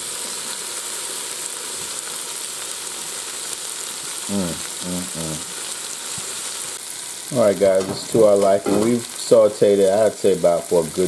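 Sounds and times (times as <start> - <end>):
vegetables sizzling in oil: 0.0 - 11.0
person's voice: 4.3 - 5.5, 7.3 - 11.0.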